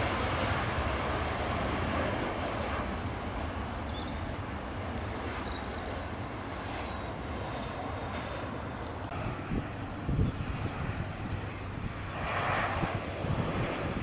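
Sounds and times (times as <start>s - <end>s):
jet engines running: 0.0s - 14.0s.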